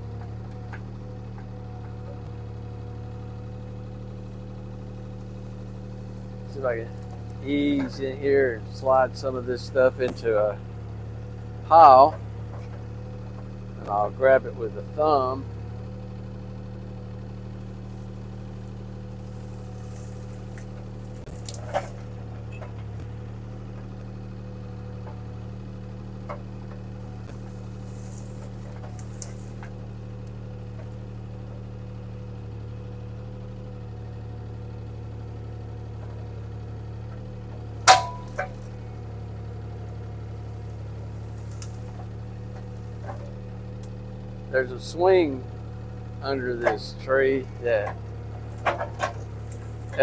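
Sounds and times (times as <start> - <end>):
diesel engine running: 0.0 - 50.0.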